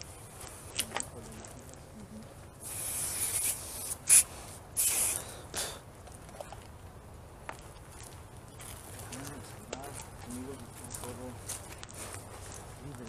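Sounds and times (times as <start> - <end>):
aerosol spray can hissing: 2.6 - 5.3.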